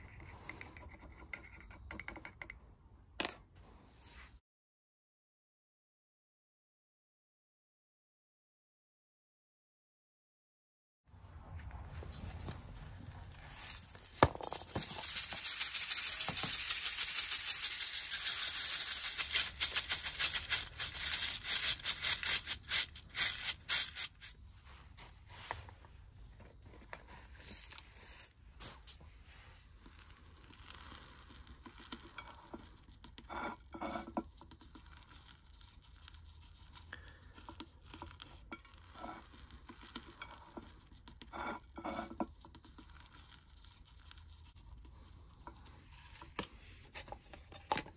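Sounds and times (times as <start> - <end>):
soil scooped and poured: 11.2 - 25.7, 26.6 - 47.1
soil rattling in metal sieve: 13.0 - 24.4, 29.8 - 32.8.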